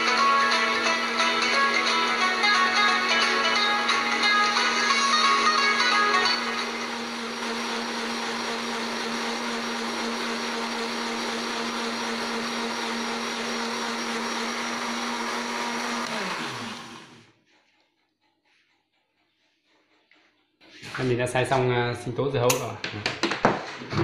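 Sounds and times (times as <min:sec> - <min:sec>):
electric blender running: 0:00.0 - 0:17.5.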